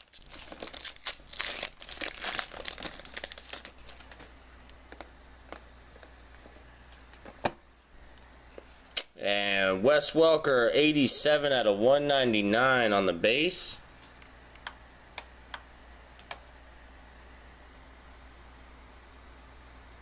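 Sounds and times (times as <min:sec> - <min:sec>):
wrapper crinkling and tearing: 0:00.0 - 0:04.8.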